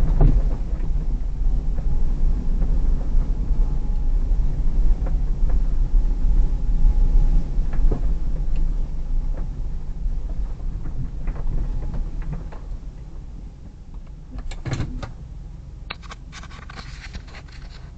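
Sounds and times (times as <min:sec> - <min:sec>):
car engine rumble: 0:00.0 - 0:17.9
small clicks and creaks: 0:15.9 - 0:17.9
tyres on snow: 0:15.9 - 0:17.9.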